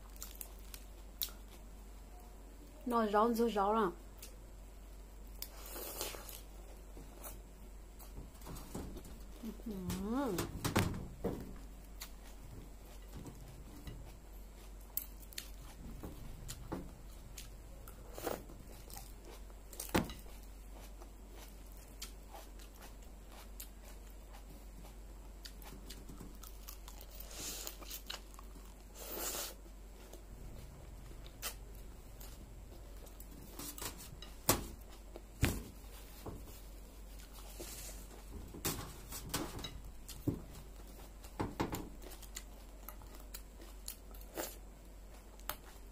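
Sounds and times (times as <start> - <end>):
chewing crisp salad leaves: 0.0 - 1.8, 11.8 - 38.3, 39.9 - 45.9
faint low hum: 0.0 - 45.9.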